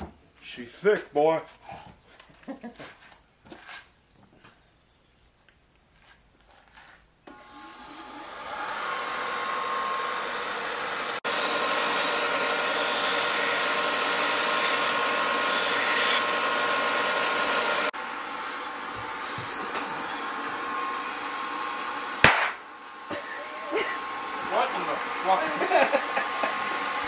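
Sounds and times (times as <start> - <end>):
sander motor whine: 7.3 - 22.2, 22.9 - 27.0
wood sanding hiss: 7.8 - 22.1, 23.1 - 27.0.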